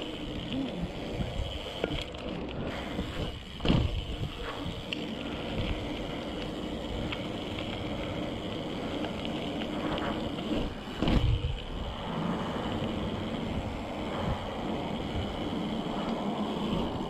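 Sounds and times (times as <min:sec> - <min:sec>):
bike tyres rolling on asphalt: 0:00.0 - 0:17.0
wind noise on microphone: 0:02.7 - 0:04.9, 0:10.2 - 0:17.0.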